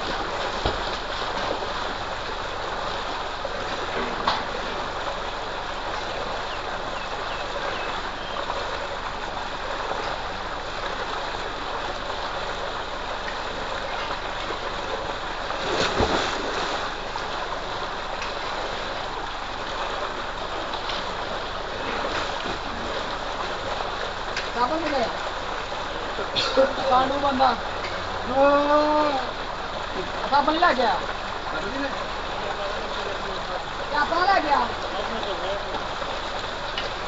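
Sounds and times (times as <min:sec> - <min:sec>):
water gushing from a pipe: 0:00.0 - 0:37.0
person jumping into water: 0:15.5 - 0:17.0.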